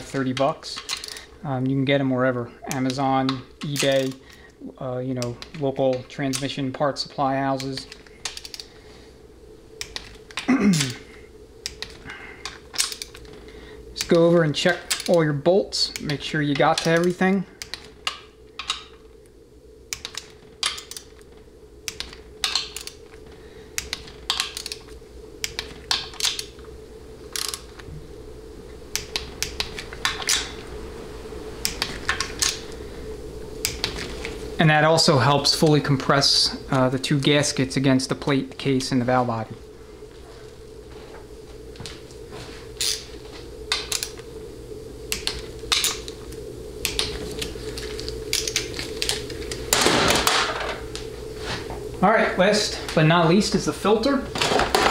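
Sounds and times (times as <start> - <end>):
steady low hum: 0.0 - 54.9
torque wrench clicking: 0.1 - 1.3, 7.6 - 8.7, 9.8 - 10.9, 11.6 - 13.3, 14.8 - 15.3, 15.9 - 19.0, 19.9 - 21.2, 21.8 - 23.0, 23.8 - 26.5, 27.3 - 27.8, 31.6 - 32.7, 42.8 - 43.1.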